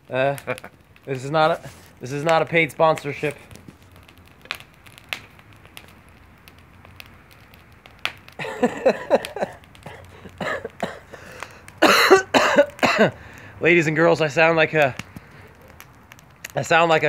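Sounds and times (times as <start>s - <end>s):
man coughing: 8.4s - 13.2s.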